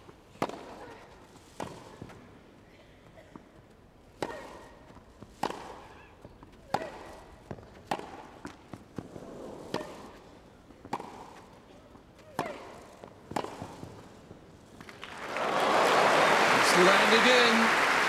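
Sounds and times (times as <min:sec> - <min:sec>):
racket hitting tennis ball: 0:00.3 - 0:02.2, 0:04.1 - 0:14.9
tennis ball bouncing: 0:00.3 - 0:02.2, 0:03.3 - 0:15.0.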